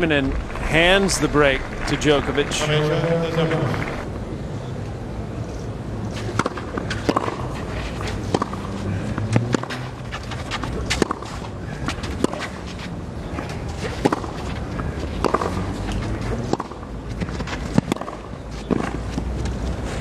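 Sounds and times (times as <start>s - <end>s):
racket striking tennis ball: 6.2s - 12.5s, 13.8s - 14.4s, 15.2s - 15.6s, 16.4s - 19.5s.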